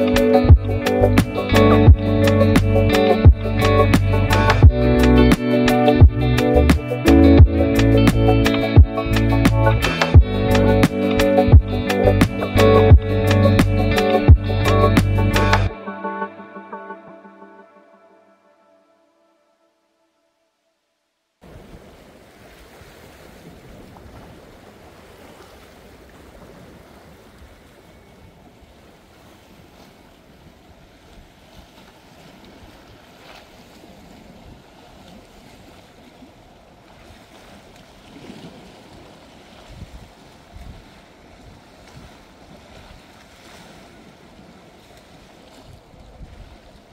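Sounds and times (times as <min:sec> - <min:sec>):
sea waves washing: 0:00.0 - 0:18.1, 0:21.4 - 0:46.9
wind buffeting microphone: 0:38.4 - 0:43.2, 0:45.4 - 0:46.9.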